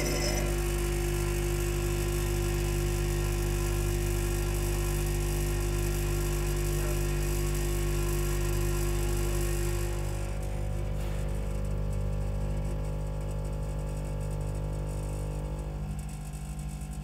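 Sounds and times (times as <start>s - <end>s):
machine hum: 0.0s - 2.6s.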